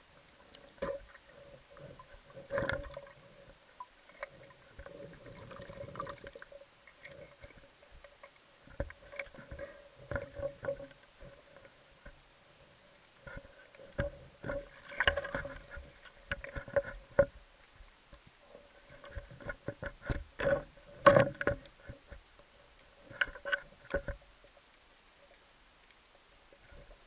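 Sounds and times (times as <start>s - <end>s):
faint steady hum: 0.0s - 27.0s
underwater clicks and knocks: 0.4s - 12.2s, 13.2s - 17.4s, 18.1s - 22.2s, 23.0s - 24.3s.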